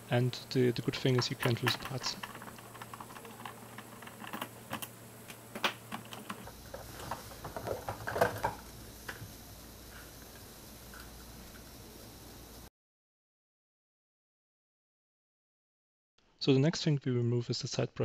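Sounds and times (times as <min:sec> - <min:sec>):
plastic clicks and clacks: 0:01.0 - 0:08.6.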